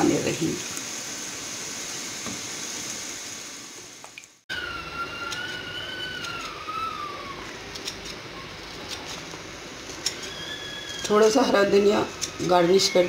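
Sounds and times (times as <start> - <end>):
steady hiss: 0.0 - 13.0
scissors snipping leaves: 5.2 - 13.0.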